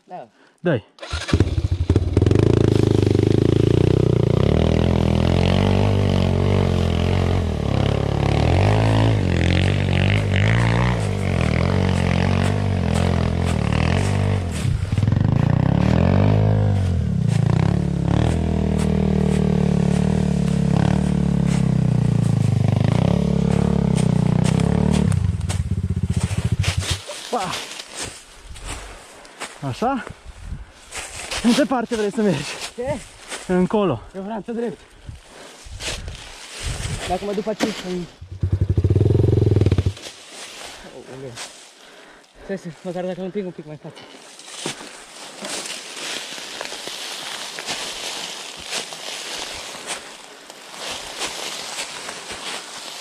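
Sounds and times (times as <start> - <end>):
dirt bike engine revving: 1.0 - 27.1, 38.2 - 40.1.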